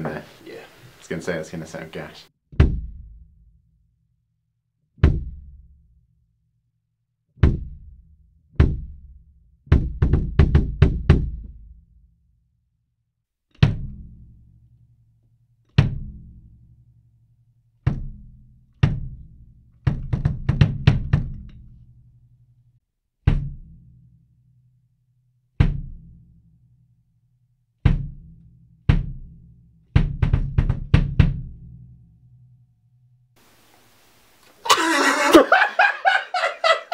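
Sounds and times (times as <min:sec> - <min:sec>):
kick drum: 0:02.5 - 0:03.3, 0:05.0 - 0:05.6, 0:07.4 - 0:11.8, 0:17.9 - 0:19.2, 0:19.9 - 0:21.5, 0:23.3 - 0:23.7, 0:25.6 - 0:26.1, 0:27.8 - 0:28.3, 0:28.9 - 0:29.4, 0:30.0 - 0:31.6.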